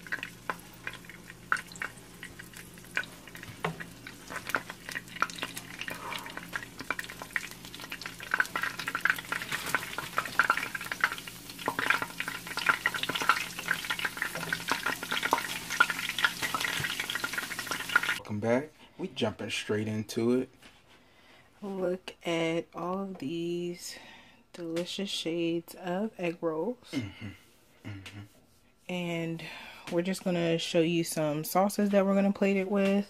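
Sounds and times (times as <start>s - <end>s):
egg rolls frying in oil: 0.0s - 18.2s.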